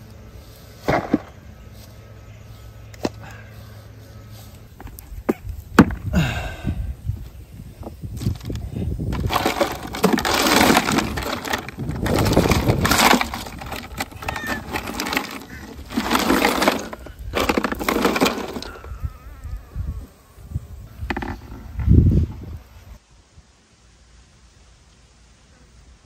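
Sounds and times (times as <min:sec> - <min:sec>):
low bumps: 0:04.6 - 0:18.9
ice cubes clattering and crunching: 0:08.2 - 0:19.0.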